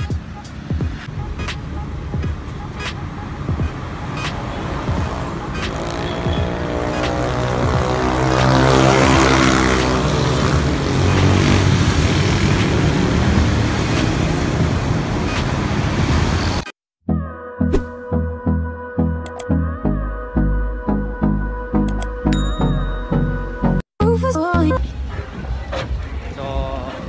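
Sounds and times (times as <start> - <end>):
motorcycle and car engines passing: 0.2 - 16.6.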